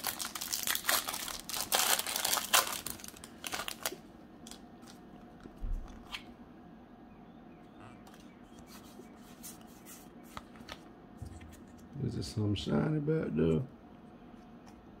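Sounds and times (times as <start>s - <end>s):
foil wrapper crinkling: 0.0s - 5.0s.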